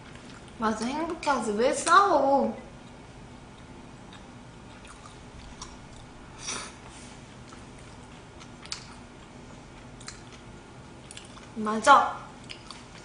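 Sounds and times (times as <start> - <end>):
person chewing food: 0.0 - 0.6, 2.7 - 11.6, 12.4 - 13.0
mouth clicks and smacks: 8.4 - 9.0, 10.0 - 10.4, 11.0 - 11.6, 12.4 - 13.0.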